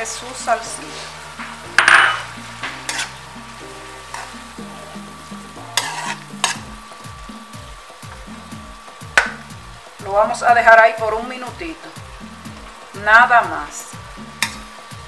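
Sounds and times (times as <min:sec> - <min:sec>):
liquid sizzling in a hot pot: 0:00.0 - 0:15.0
metal spoon scraping a pot: 0:00.8 - 0:03.2, 0:04.1 - 0:04.4, 0:05.7 - 0:06.7.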